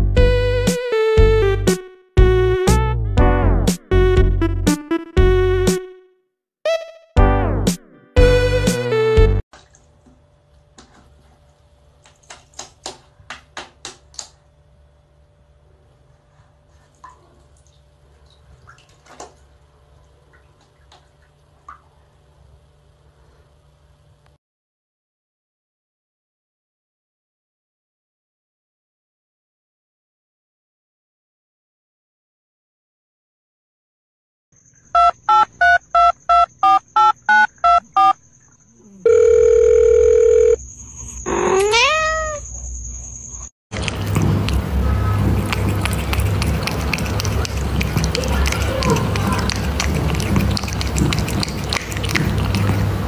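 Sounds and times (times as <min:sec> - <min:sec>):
water splashes in plastic basin: 0:09.5 - 0:10.2, 0:10.8 - 0:14.2, 0:16.8 - 0:22.1, 0:43.7 - 0:53.0
steady beep: 0:35.0 - 0:38.2
telephone keypad touch-tones: 0:35.0 - 0:38.2
cat meowing: 0:41.3 - 0:42.5.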